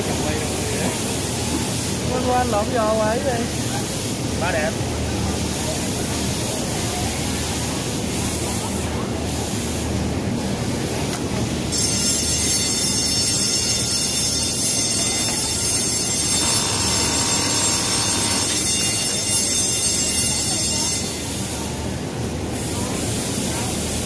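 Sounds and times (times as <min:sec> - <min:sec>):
sewing machine running: 0:16.2 - 0:18.7.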